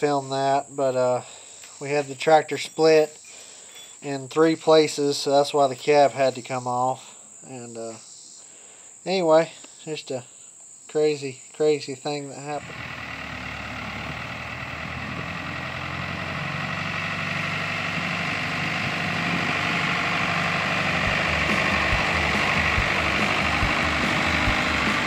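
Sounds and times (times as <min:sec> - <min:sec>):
tractor diesel engine running: 0:12.6 - 0:25.0.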